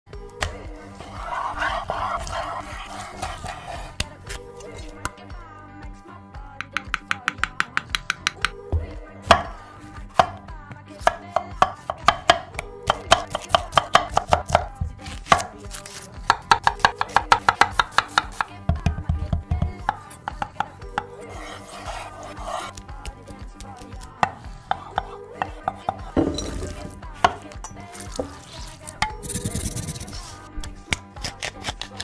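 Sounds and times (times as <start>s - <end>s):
knife chopping on wooden board: 11.0s - 28.4s.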